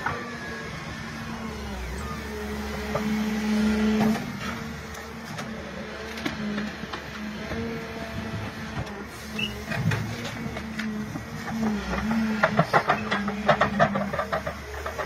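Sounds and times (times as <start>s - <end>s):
machine engine and hydraulics droning: 0.0s - 15.0s.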